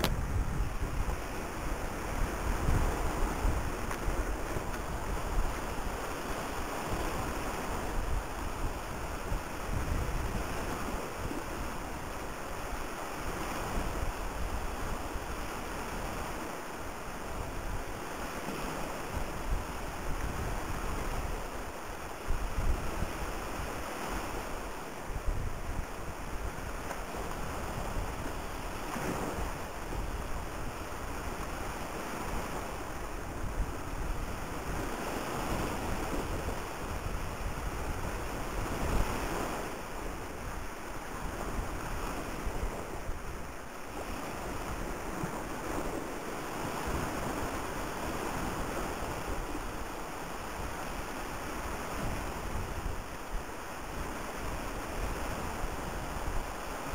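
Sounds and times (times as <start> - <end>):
choppy sea water rushing: 0.0 - 56.9
wind buffeting microphone: 0.0 - 56.9.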